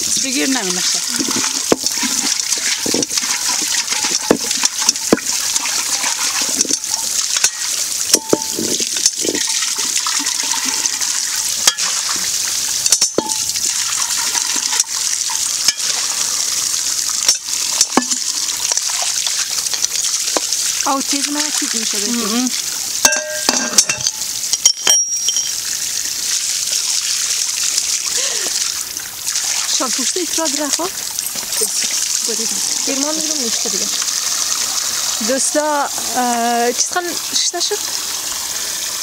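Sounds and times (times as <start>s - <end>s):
water splashing over hands: 0.0s - 12.4s, 17.6s - 22.5s, 28.0s - 37.9s
water pouring onto stone: 0.0s - 39.0s
metal pot knocks and clinks: 1.1s - 11.0s, 11.6s - 12.1s, 12.9s - 13.5s, 14.2s - 16.0s, 17.2s - 18.3s, 23.0s - 25.6s, 31.0s - 31.9s.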